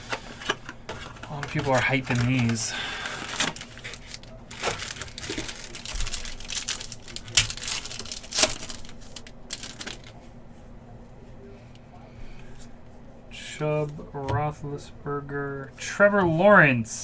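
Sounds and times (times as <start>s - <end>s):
plastic wrapper tearing and crinkling: 1.0s - 10.2s.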